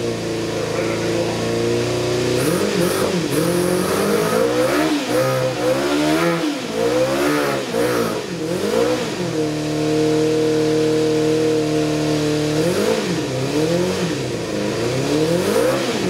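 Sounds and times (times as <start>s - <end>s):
motorcycle engine revving and idling: 0.0s - 16.0s.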